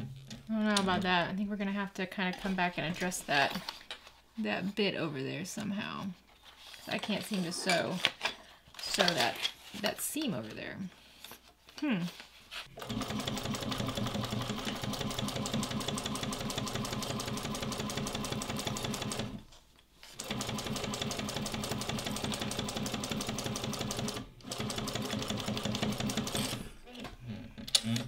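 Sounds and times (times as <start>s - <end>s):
sewing machine stitching leather: 12.8s - 19.4s, 20.2s - 26.7s.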